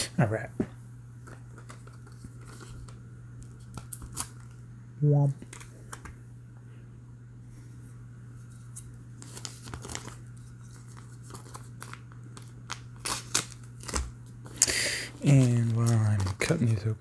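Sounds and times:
plastic bags crinkling and tearing: 9.2s - 16.8s.

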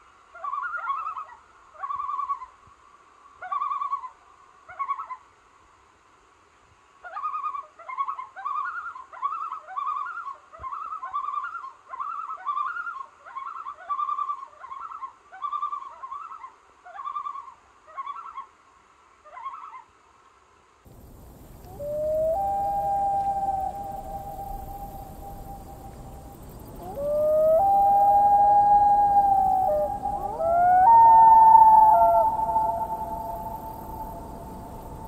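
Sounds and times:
loon calling: 21.0s - 35.0s.

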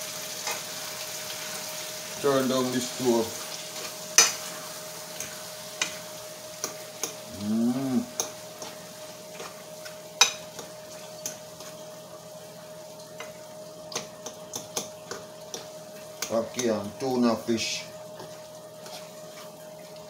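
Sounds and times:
faint sizzle: 0.0s - 20.0s
person humming: 7.2s - 8.3s
fork scraping a frying pan: 8.1s - 11.8s, 18.2s - 19.6s.

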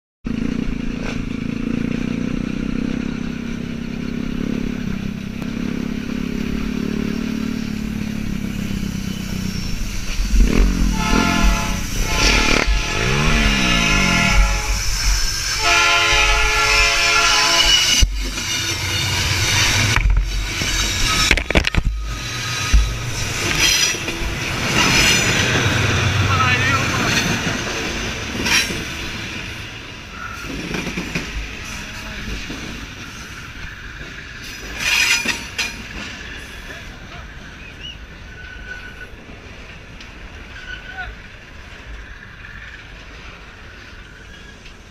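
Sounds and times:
dirt bike engine running: 0.3s - 14.8s
train horn blasts: 10.3s - 18.0s.

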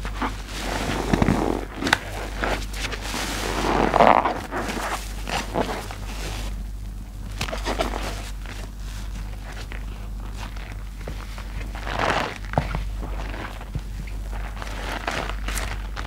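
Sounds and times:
suds crackling: 0.0s - 16.0s.

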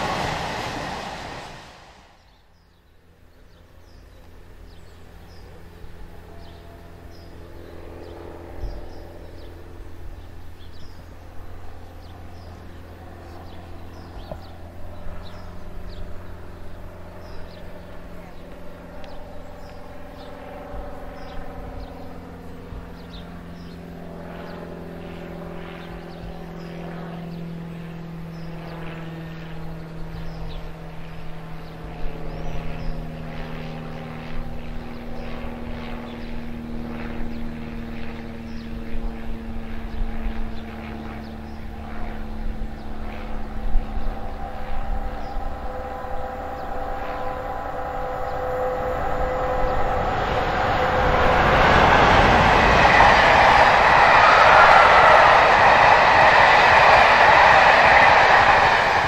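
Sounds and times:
train engine droning: 0.0s - 2.6s, 43.4s - 59.0s.

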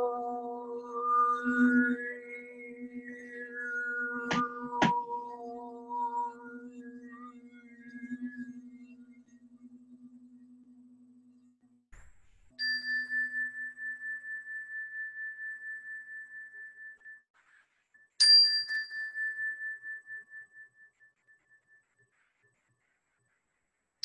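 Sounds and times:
metal chime ringing: 12.6s - 14.2s.

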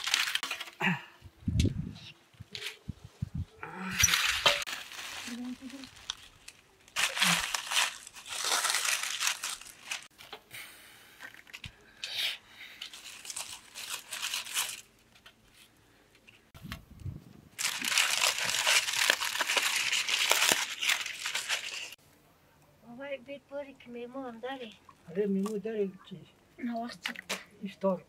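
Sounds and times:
aluminium foil crinkling: 0.0s - 0.9s, 3.9s - 10.4s, 12.7s - 16.4s, 17.6s - 22.0s.

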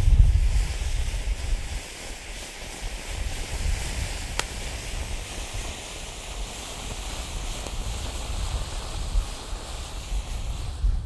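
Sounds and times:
firework fountain hissing: 0.0s - 11.0s
wind buffeting microphone: 0.0s - 11.0s
sharp pop: 4.3s - 5.1s.

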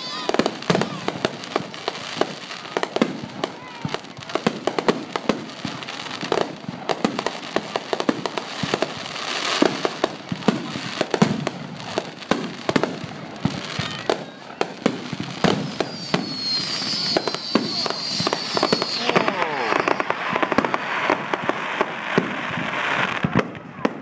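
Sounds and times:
firework shells bursting: 14.8s - 22.7s.

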